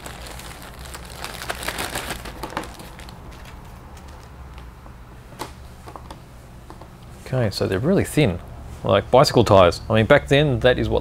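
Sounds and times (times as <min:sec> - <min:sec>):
plastic bag crinkling: 0:00.0 - 0:04.6.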